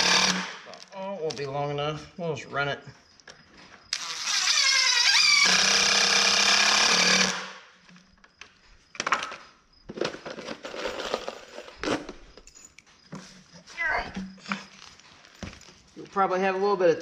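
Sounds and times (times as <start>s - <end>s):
cordless drill whine: 0.0s - 0.5s, 3.9s - 7.6s.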